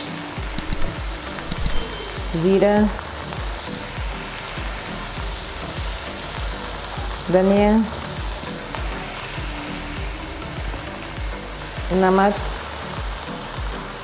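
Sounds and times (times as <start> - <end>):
vegetables sizzling in a wok: 0.0 - 14.0
person speaking: 0.5 - 3.1, 6.8 - 12.6.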